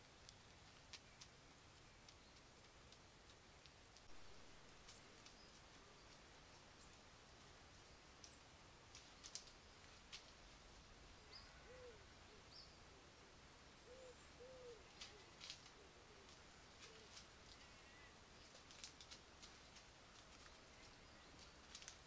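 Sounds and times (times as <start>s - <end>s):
faint high ticks and clicks: 0.0s - 7.1s, 7.7s - 10.6s, 14.8s - 22.0s
quiet hiss: 0.0s - 22.0s
hoot-like animal calls: 11.5s - 13.1s, 13.8s - 18.2s.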